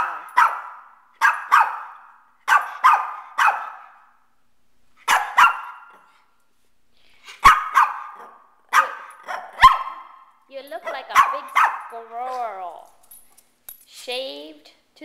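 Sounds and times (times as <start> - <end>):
small dog barking: 0.0 - 4.0, 5.0 - 6.0, 7.4 - 10.2, 10.8 - 11.9.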